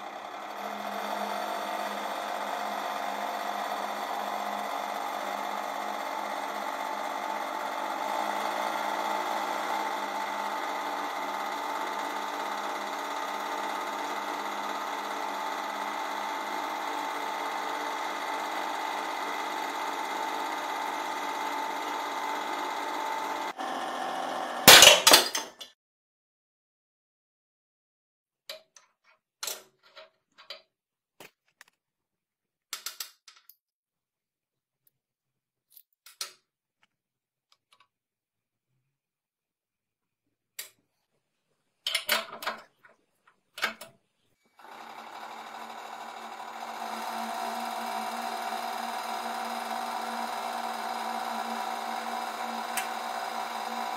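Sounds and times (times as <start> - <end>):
hydraulic press humming: 0.0 - 25.2, 44.6 - 53.9
loud sharp metal crack: 24.7 - 25.4.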